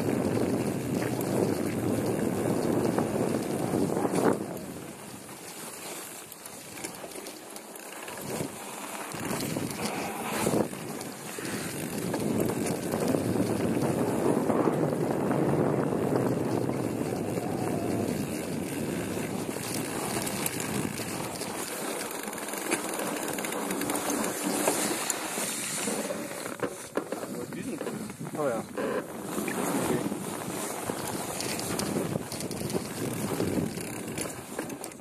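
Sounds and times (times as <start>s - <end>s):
wind buffeting microphone: 0.0s - 5.3s, 9.1s - 21.6s, 27.2s - 35.0s
bike tyres rushing through snow: 0.0s - 35.0s.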